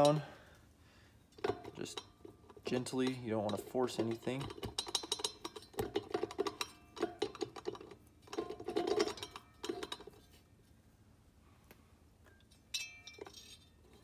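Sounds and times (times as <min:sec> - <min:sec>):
sharp metallic clink with ring: 0:12.7 - 0:13.2.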